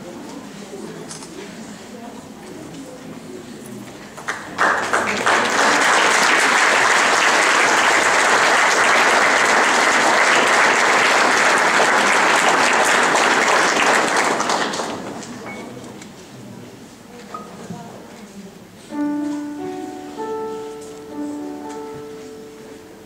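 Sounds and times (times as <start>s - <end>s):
audience applauding: 4.2s - 15.4s.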